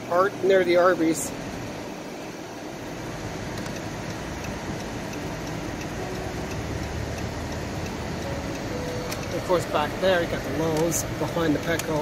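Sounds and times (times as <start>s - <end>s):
turn signal ticking: 2.9s - 12.0s.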